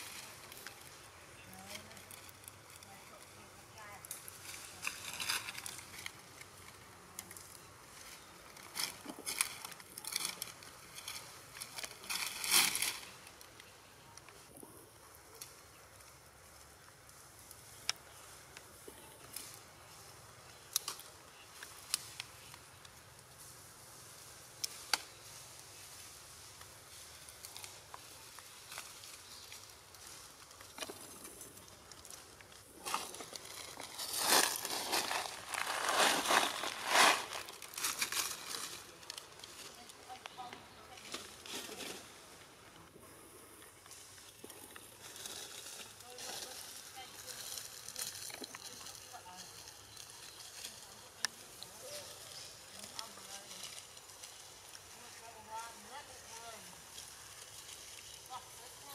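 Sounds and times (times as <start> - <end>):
dry leaves rustling and crunching: 0.0 - 13.7, 17.2 - 42.4, 43.9 - 58.9
soft steady hiss: 0.0 - 58.9.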